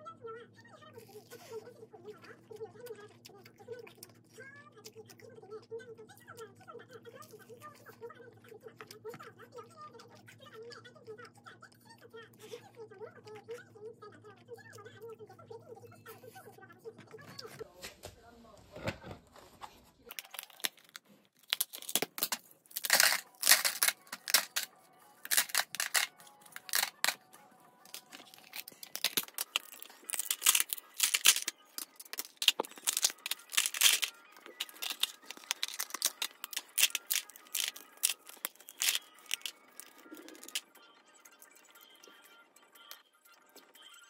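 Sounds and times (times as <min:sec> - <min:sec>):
ice cubes cracking from trays: 0:20.1 - 0:27.3, 0:27.9 - 0:40.6
ice cubes clattering into bin: 0:21.6 - 0:24.7, 0:25.3 - 0:27.2, 0:27.9 - 0:40.6
plastic trays clicking and knocking: 0:25.3 - 0:27.2.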